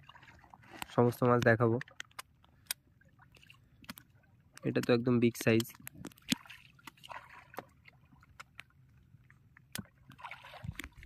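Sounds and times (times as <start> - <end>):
rustling splashy sounds: 9.8 - 11.0.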